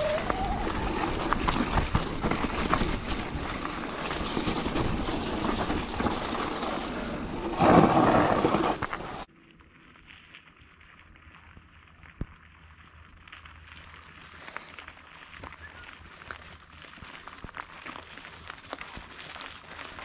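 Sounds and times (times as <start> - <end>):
bike rattling and knocking: 0.0 - 9.2
tyres rolling over dirt: 0.0 - 20.0.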